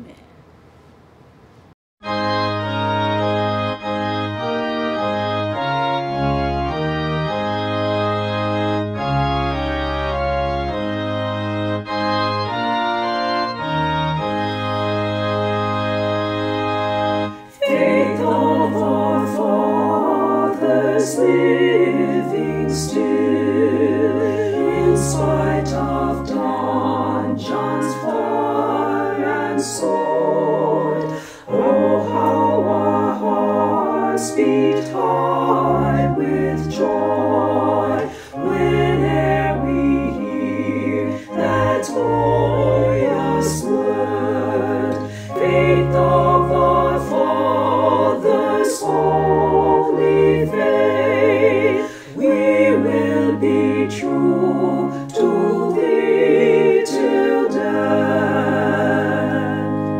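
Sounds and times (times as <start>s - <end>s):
church organ playing a hymn: 2.0s - 59.9s
choir singing: 2.6s - 59.9s.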